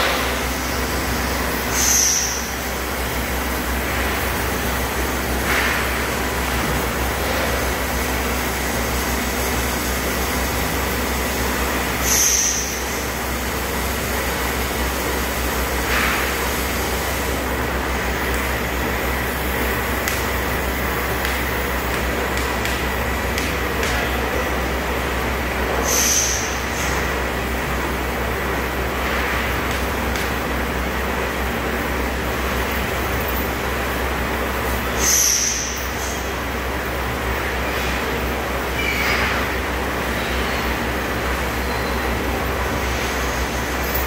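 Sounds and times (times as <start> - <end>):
hydraulic pump motor humming: 0.0 - 33.1.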